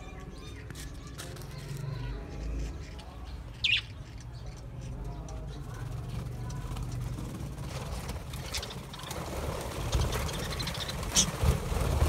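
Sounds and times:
budgerigars chirping: 0:02.6 - 0:05.4
bird wings fluttering: 0:05.9 - 0:12.0.

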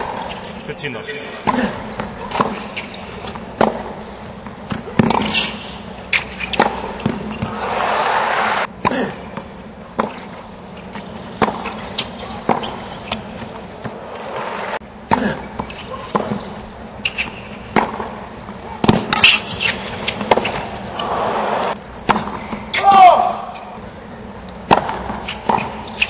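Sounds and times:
tennis racquets hitting ball: 0:01.3 - 0:23.4, 0:24.6 - 0:26.0
crowd cheering and applause: 0:07.4 - 0:08.7, 0:20.9 - 0:21.8.

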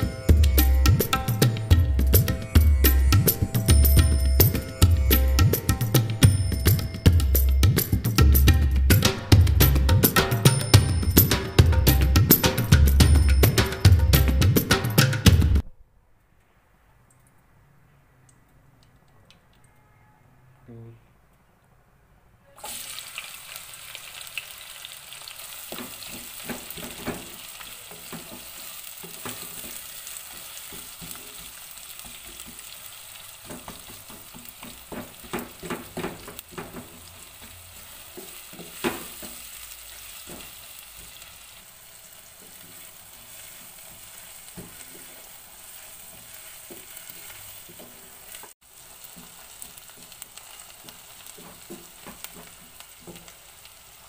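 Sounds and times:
onions sizzling in hot oil: 0:22.6 - 0:54.0
wooden spatula scraping pan: 0:42.4 - 0:53.2.

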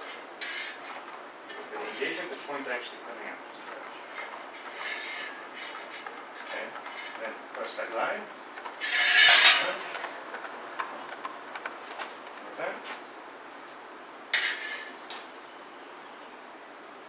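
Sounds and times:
sabre blades scraping: 0:00.0 - 0:02.4, 0:03.7 - 0:07.4, 0:08.6 - 0:10.1, 0:14.4 - 0:15.0.

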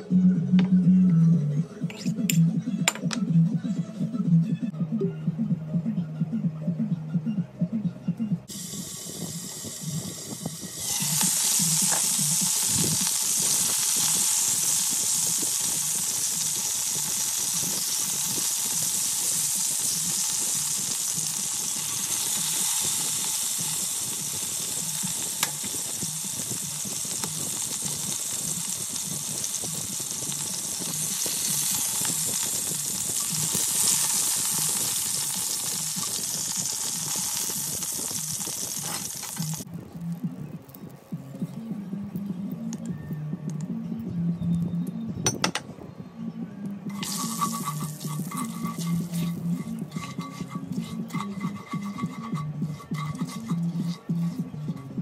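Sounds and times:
meat sizzling in hot oil: 0:08.5 - 0:40.1, 0:46.9 - 0:54.9.

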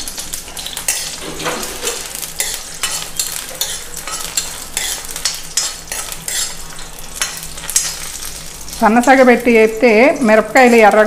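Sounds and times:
oil sizzling: 0:00.0 - 0:11.0
spatula scraping a pan: 0:00.6 - 0:08.4.

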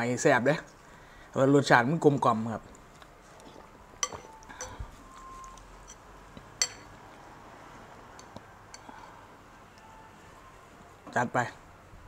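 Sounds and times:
utensils clinking against bowl: 0:04.0 - 0:04.8, 0:06.6 - 0:06.9.

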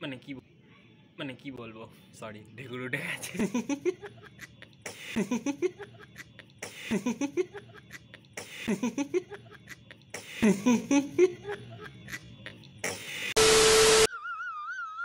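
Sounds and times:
man laughing: 0:03.2 - 0:13.4.

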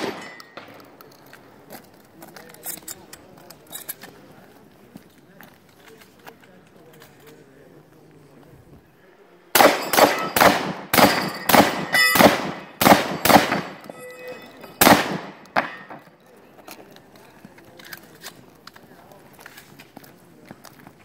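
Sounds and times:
gunshots with echo: 0:00.0 - 0:00.8, 0:09.5 - 0:13.9, 0:14.8 - 0:16.0
steel targets ringing: 0:00.0 - 0:00.9, 0:09.6 - 0:16.1.

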